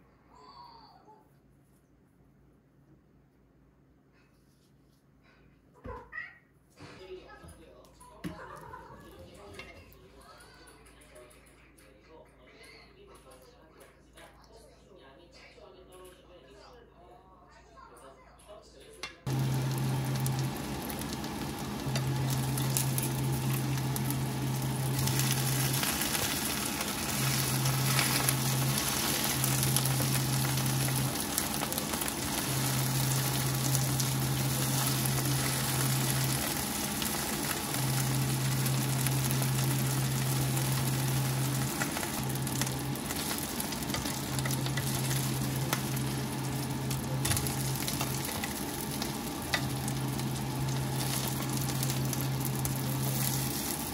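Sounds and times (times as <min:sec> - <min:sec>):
food sizzling in a pan: 0:19.3 - 0:53.9
low hum: 0:19.3 - 0:53.9.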